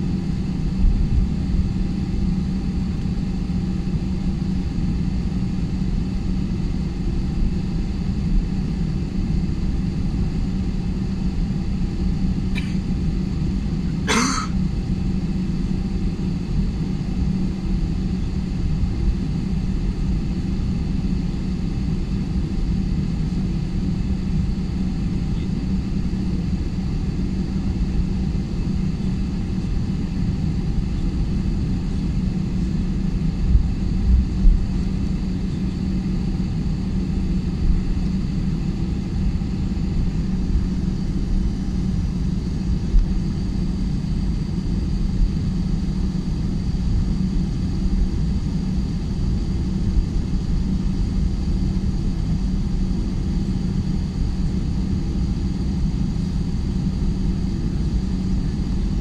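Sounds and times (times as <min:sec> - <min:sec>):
jet engines rumbling: 0:10.2 - 0:16.3, 0:18.8 - 0:54.3.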